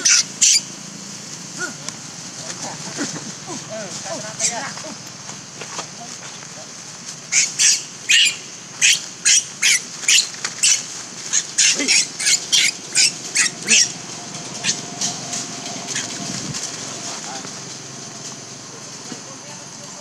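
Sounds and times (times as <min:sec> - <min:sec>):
infant monkey shrieking: 0:00.0 - 0:00.7, 0:02.6 - 0:05.0, 0:07.3 - 0:14.0, 0:14.6 - 0:15.1, 0:15.9 - 0:16.2.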